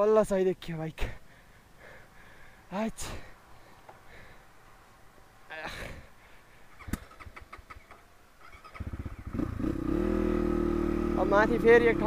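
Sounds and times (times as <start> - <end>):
dirt bike engine idling: 6.7 - 12.0.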